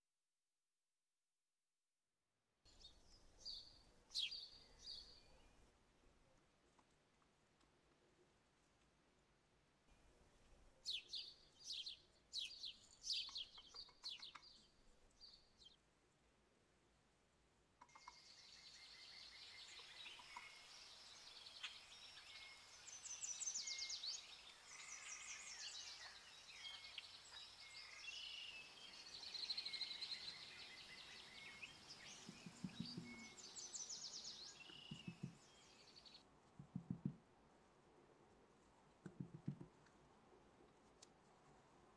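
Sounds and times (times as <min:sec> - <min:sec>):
small birds chirping: 0:02.7 - 0:05.7, 0:10.8 - 0:15.8, 0:17.8 - 0:37.2
soft dull knocks: 0:36.6 - 0:37.3, 0:39.0 - 0:39.8.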